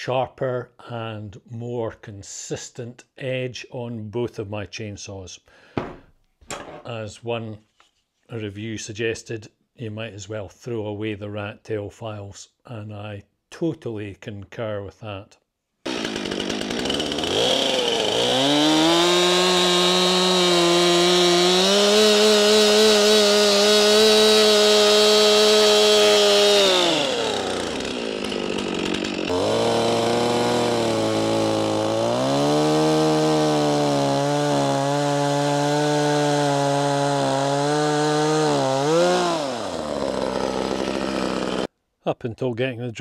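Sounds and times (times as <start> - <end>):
chainsaws cutting logs: 15.8 - 41.7.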